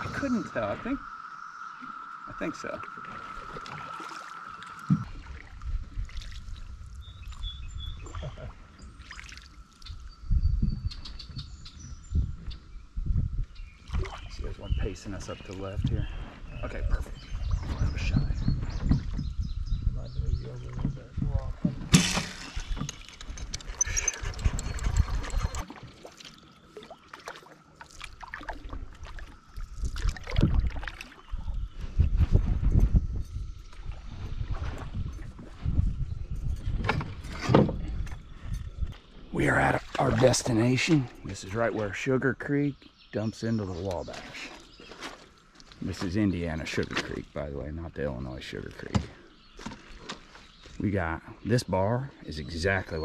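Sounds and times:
water dripping and trickling: 1.7 - 11.1, 22.6 - 31.8
wind gusting on microphone: 4.8 - 9.0, 9.8 - 25.7, 29.6 - 41.8.

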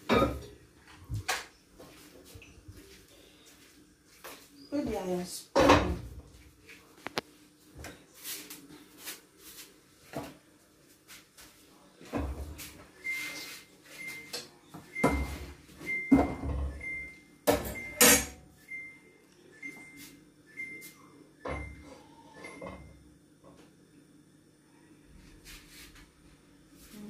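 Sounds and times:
pot and utensils clattering: 0.0 - 0.6, 17.5 - 18.4.

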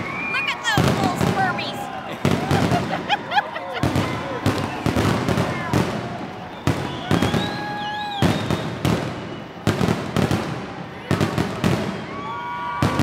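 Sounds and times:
firework shells booming: 0.8 - 12.1
high whistling tone: 6.4 - 9.6.

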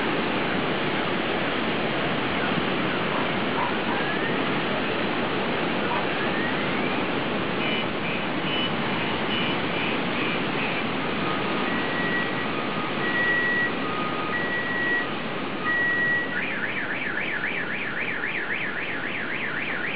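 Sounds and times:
car alarm beeping and warbling: 8.5 - 19.9.

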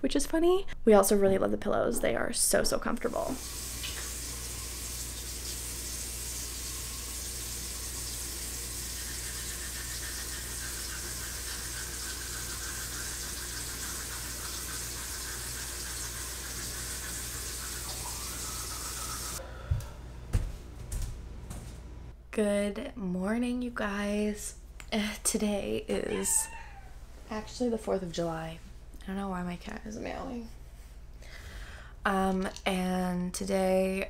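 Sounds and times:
sink tap running: 3.4 - 19.4.

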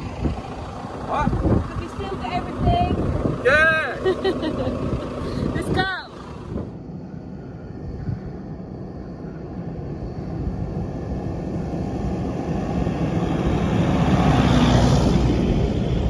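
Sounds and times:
vehicle engine passing: 0.0 - 6.8, 10.5 - 16.0.

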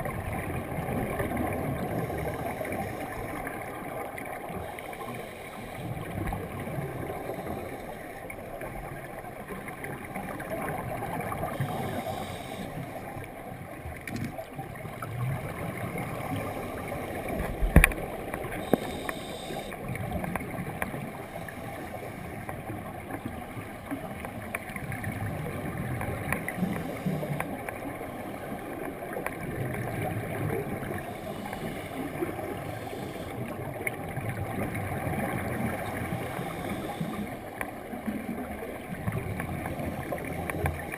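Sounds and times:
regulator breathing underwater: 4.8 - 6.2, 11.4 - 13.0, 18.4 - 20.0, 26.6 - 27.6, 30.8 - 33.7, 35.8 - 37.5.

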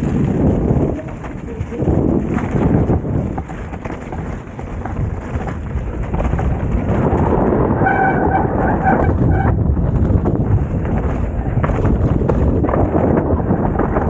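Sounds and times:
wind rumbling on microphone: 0.0 - 14.0
short high squeaks: 7.8 - 9.6.

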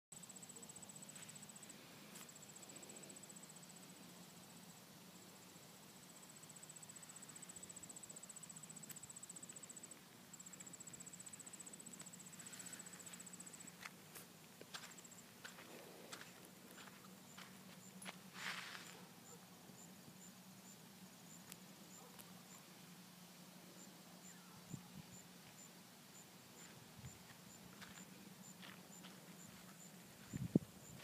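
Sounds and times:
cricket trill: 5.9 - 22.9, 23.7 - 31.0.

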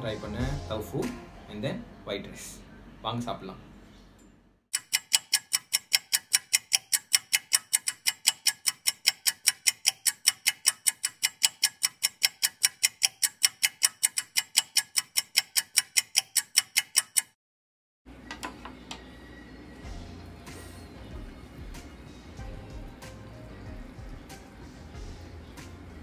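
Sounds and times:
clock ticking: 4.7 - 17.4.

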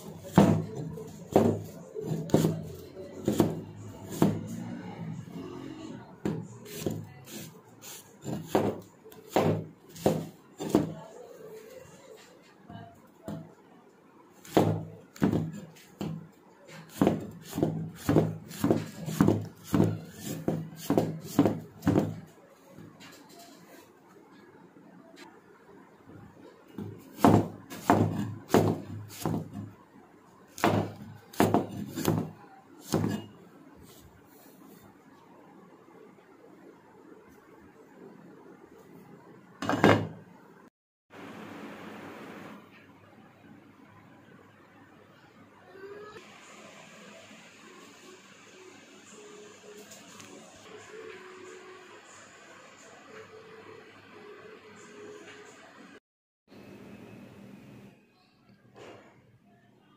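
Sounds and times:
meat cleaver chopping apple: 0.3 - 4.5, 8.3 - 10.9, 16.9 - 22.2, 27.1 - 29.6, 30.6 - 33.3.

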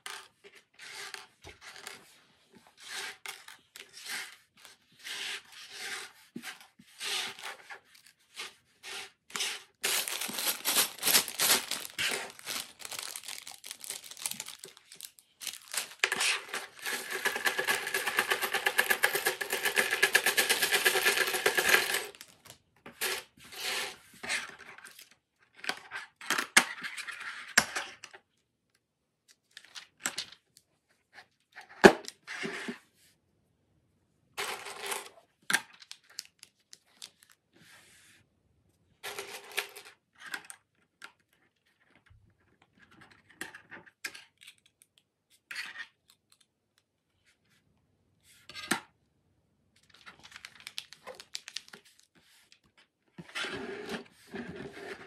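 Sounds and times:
plastic bricks clicking and rattling: 9.8 - 22.4
plastic bag crinkling: 9.8 - 22.5, 49.9 - 52.0.

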